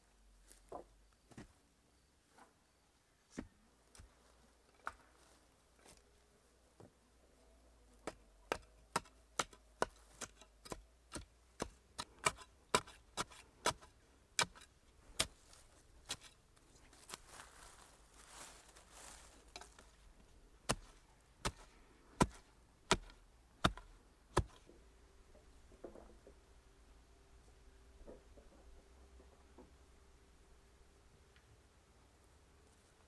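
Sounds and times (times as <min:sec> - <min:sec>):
stick striking earth: 0:08.0 - 0:16.4, 0:19.4 - 0:20.0, 0:20.6 - 0:24.7
hands brushing soil: 0:11.6 - 0:24.7.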